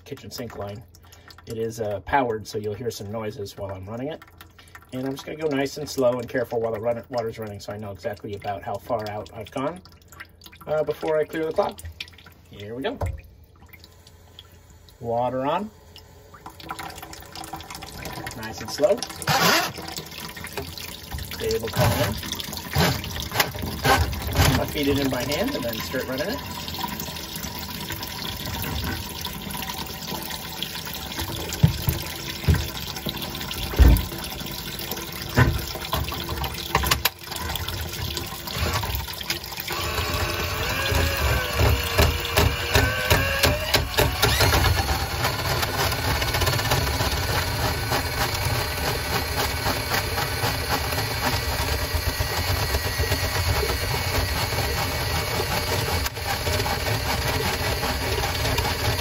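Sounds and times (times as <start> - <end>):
water splashing into bucket: 0.0 - 15.7, 16.3 - 59.0
powered drain snake running: 14.8 - 59.0.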